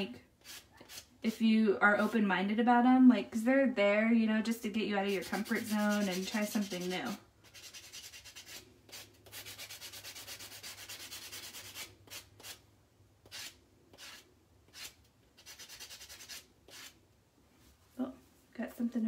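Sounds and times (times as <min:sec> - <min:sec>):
nail buffer sanding strokes: 0:00.4 - 0:01.3, 0:05.0 - 0:12.6, 0:13.2 - 0:17.0.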